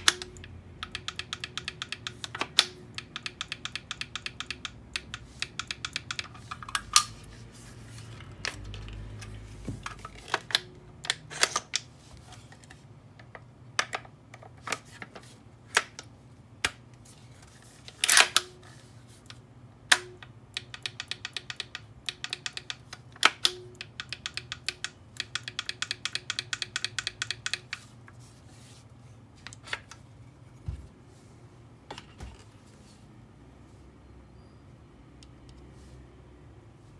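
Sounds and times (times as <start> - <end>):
small parts clicking: 0.0 - 7.2, 19.2 - 28.2.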